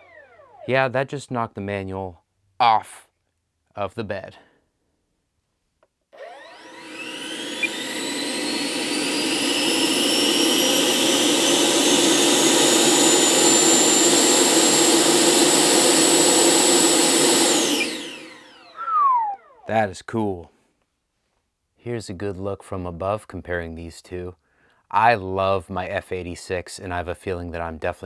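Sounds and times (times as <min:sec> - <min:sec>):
electric ducted fan whine: 0:00.0 - 0:01.0, 0:06.2 - 0:19.9.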